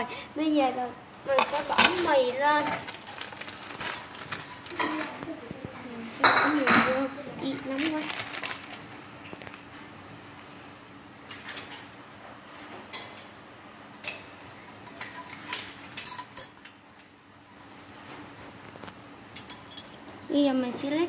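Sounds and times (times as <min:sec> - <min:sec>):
light clicks and clinks: 0:19.4 - 0:20.6.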